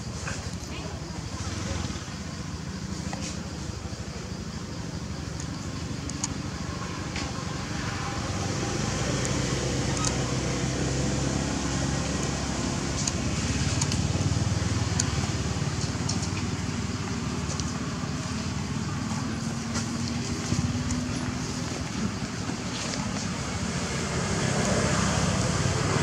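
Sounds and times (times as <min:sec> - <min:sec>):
faint clicks: 0:05.3 - 0:06.4.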